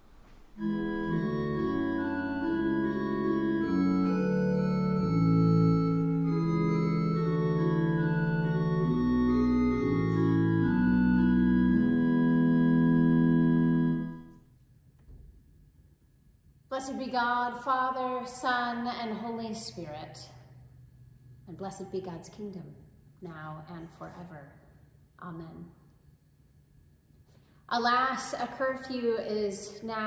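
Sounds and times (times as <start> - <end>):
organ playing held chords: 0.4 - 14.4.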